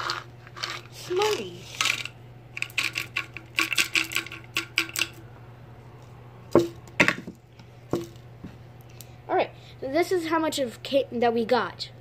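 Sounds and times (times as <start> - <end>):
small hard objects clattering: 0.0 - 5.2.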